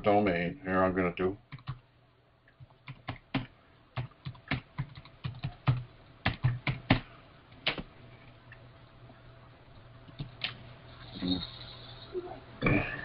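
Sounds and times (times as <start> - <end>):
typing on keyboard: 1.5 - 1.8, 2.6 - 7.0.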